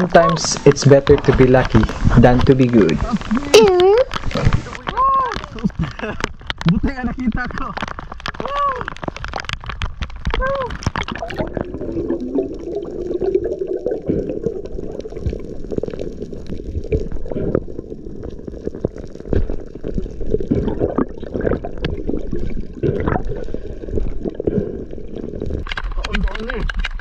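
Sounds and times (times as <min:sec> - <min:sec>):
water gurgling and bubbling: 0:00.0 - 0:27.0
scattered clicks and knocks: 0:01.0 - 0:11.2.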